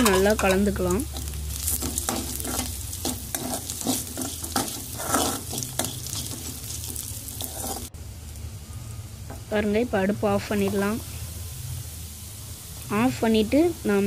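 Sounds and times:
metal spoon scraping pan: 0:00.0 - 0:07.9
light sizzle of frying: 0:00.0 - 0:14.0.

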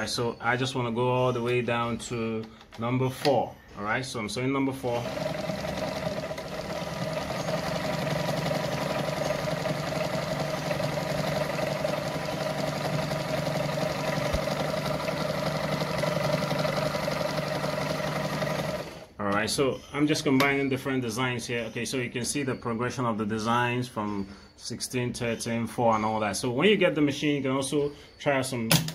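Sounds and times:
sewing machine stitching: 0:04.3 - 0:19.2.

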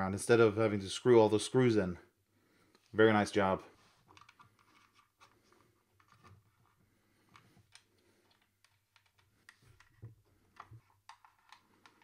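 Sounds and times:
faint clicks and taps on plastic: 0:07.2 - 0:12.0.

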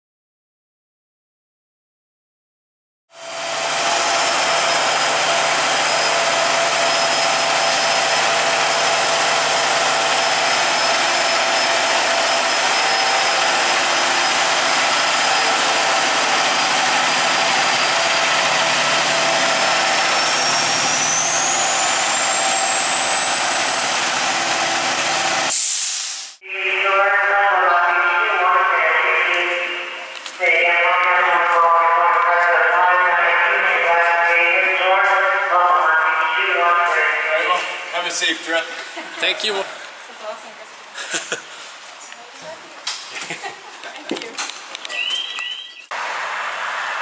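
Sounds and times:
diesel engine running: 0:03.2 - 0:25.5, 0:45.9 - 0:47.0
high whine: 0:03.2 - 0:25.6.

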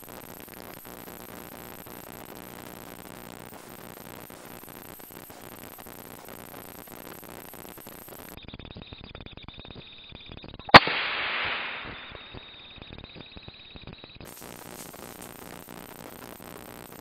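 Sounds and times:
gunshot crack: 0:10.7 - 0:12.8.

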